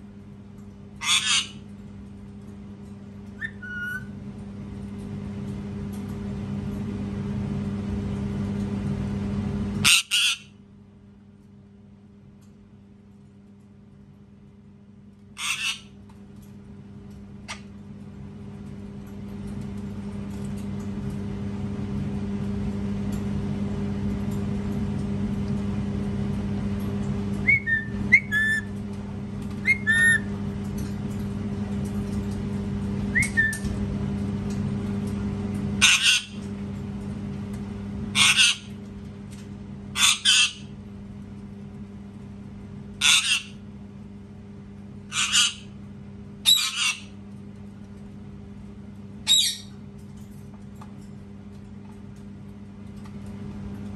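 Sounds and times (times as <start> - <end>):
steady low hum: 0.0 - 53.9
parakeet screeching: 1.0 - 1.6, 9.8 - 10.5, 15.4 - 15.9, 29.6 - 30.2, 35.8 - 36.4, 38.2 - 38.7, 40.0 - 40.6, 43.0 - 43.6, 45.1 - 45.7, 46.5 - 47.1, 49.3 - 49.7.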